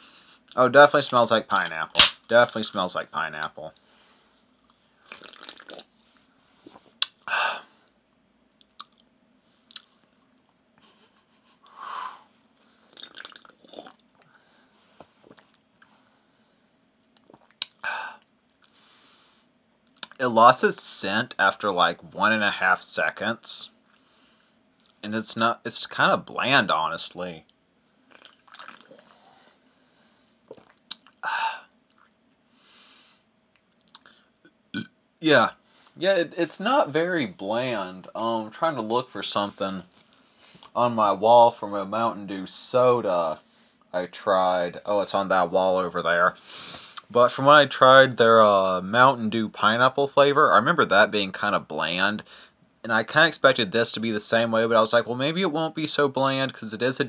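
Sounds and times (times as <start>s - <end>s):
breaths: 0.0s - 0.5s, 3.8s - 5.1s, 11.6s - 13.0s, 14.2s - 15.2s, 17.8s - 19.5s, 23.9s - 24.7s, 29.0s - 30.4s, 31.2s - 31.7s, 32.5s - 33.3s, 34.0s - 34.4s, 35.6s - 36.0s, 40.2s - 40.7s, 46.4s - 47.1s, 52.2s - 52.6s
lip smacks: 6.7s - 7.2s, 8.6s - 9.1s, 9.7s - 10.0s, 17.1s - 17.8s, 19.9s - 20.2s, 30.5s - 31.2s, 33.6s - 34.2s
breathy exhale: 11.7s - 12.3s.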